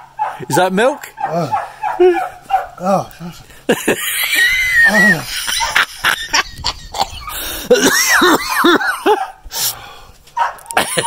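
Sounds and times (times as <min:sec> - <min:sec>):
laughter: 0:03.6 - 0:09.3, 0:10.7 - 0:11.0
man coughing and hacking: 0:07.0 - 0:09.3, 0:10.7 - 0:11.0.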